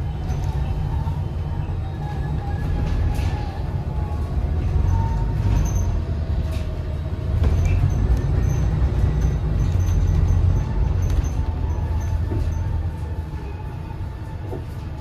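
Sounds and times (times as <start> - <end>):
bus drivetrain rumble: 0.0 - 15.0.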